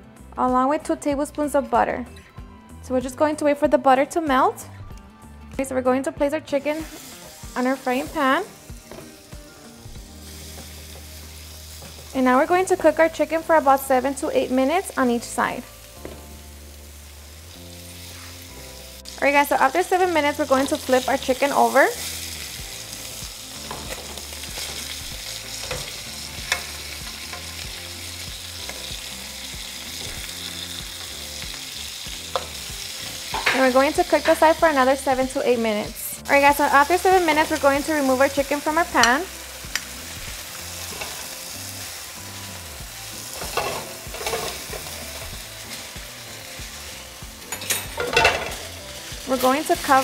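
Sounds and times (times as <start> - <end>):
chicken sizzling in frying pan: 6.5 - 50.0.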